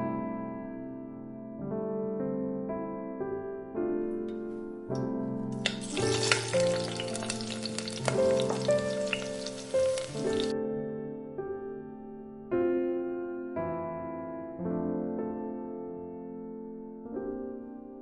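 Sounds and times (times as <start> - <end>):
soft piano music: 0.0 - 18.0
hot oil sizzling and crackling: 5.5 - 10.5.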